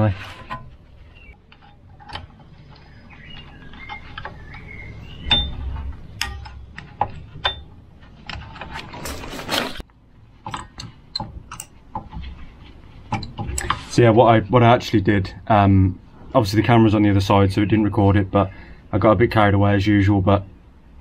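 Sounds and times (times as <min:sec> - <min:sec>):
metal scraping: 0:00.0 - 0:09.8
ringing metal knocks: 0:01.6 - 0:07.8.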